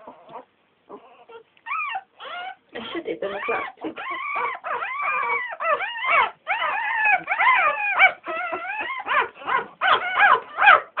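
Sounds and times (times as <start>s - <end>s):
puppies whimpering and yelping: 0.0s - 11.0s.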